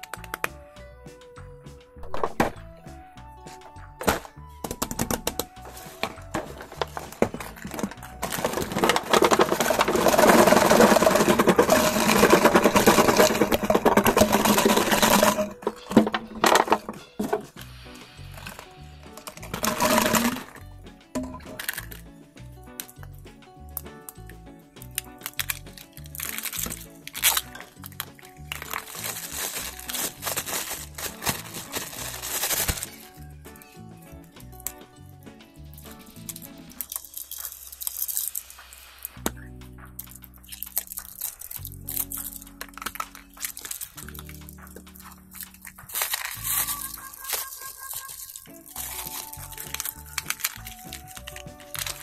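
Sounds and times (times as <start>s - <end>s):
background music: 0.0s - 52.0s
plastic toys clattering onto table: 4.0s - 17.6s, 18.4s - 20.6s, 21.2s - 22.0s, 25.3s - 33.1s, 40.5s - 52.0s
foil wrapper crinkling: 5.1s - 17.5s, 18.4s - 20.6s, 24.9s - 33.2s, 35.8s - 39.2s, 40.0s - 52.0s.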